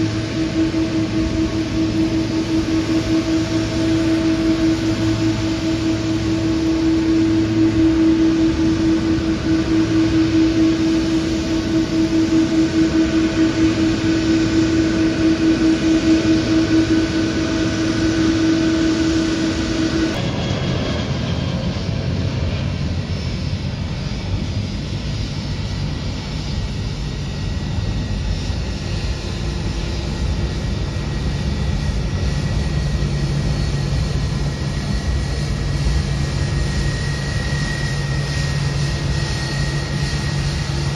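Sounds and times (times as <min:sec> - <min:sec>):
steady machine hum: 0:00.0 - 0:20.2
jet engines rumbling and whining: 0:00.0 - 0:40.9.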